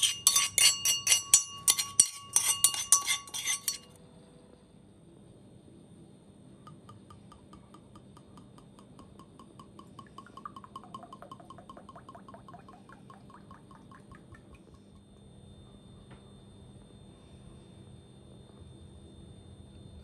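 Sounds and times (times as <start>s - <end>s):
oil glugging from a bottle: 9.7s - 15.0s.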